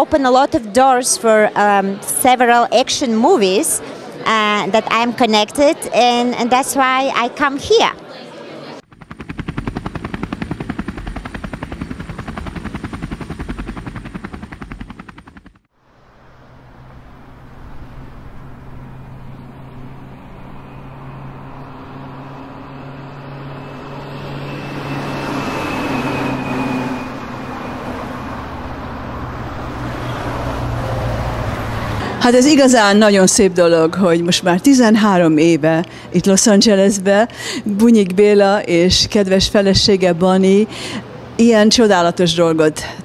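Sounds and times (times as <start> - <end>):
helicopter rotor chopping: 8.8 - 15.7, 16.6 - 33.9
city traffic noise: 15.9 - 36.2.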